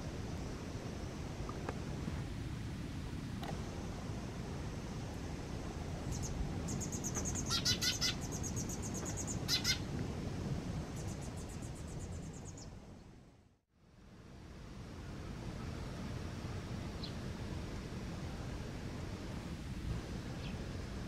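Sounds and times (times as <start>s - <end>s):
fledgling bird begging chirps: 6.1s - 9.8s.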